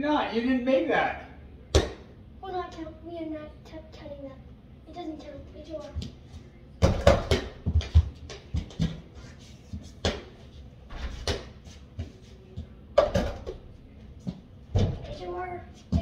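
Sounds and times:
ball bouncing on hardwood floor: 1.7 - 2.0, 6.8 - 9.1, 9.7 - 13.6, 14.2 - 15.2
footsteps: 5.2 - 16.0
ball hitting hoop and door: 6.8 - 9.0, 13.0 - 13.6, 14.7 - 15.2.

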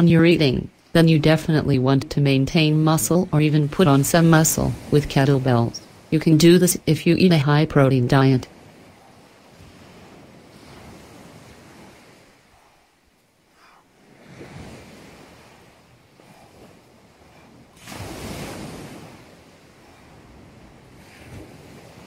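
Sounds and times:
waves washing up pebble beach: 17.7 - 22.0.

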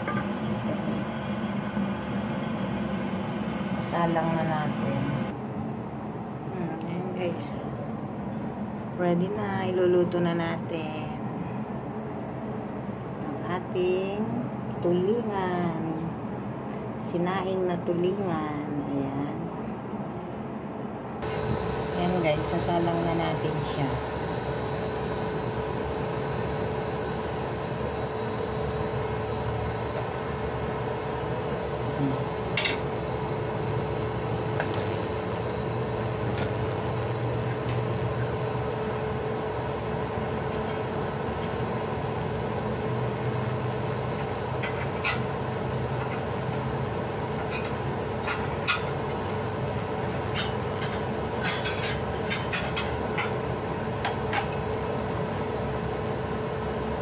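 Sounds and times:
cooktop fan hum: 0.0 - 57.0
thin high whine: 21.2 - 57.0.

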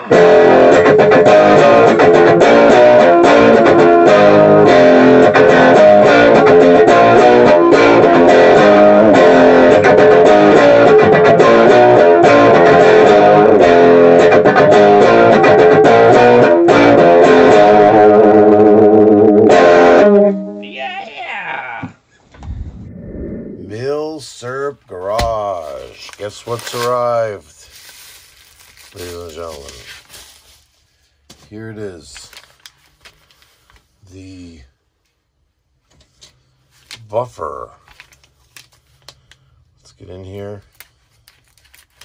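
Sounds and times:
guitar-led intro music: 0.0 - 21.0.

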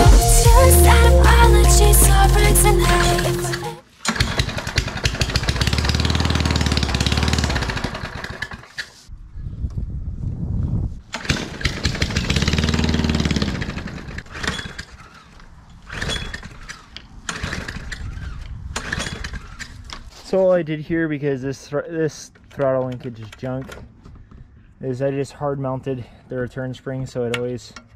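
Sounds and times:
lawnmower engine revving: 0.0 - 8.8, 11.1 - 17.9.

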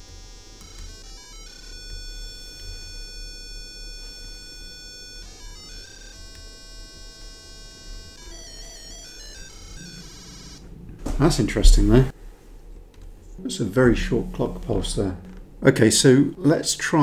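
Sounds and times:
buzzy electronic tune: 0.0 - 12.1
low hum: 7.0 - 17.0.

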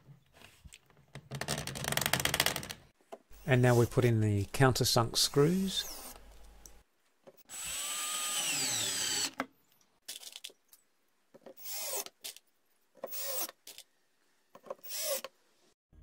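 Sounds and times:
cordless drill driving screws: 7.5 - 9.4, 13.1 - 13.6, 14.8 - 15.3.

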